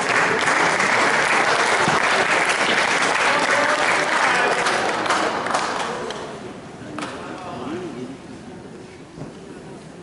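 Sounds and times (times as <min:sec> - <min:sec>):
spectators applauding: 0:00.0 - 0:06.3.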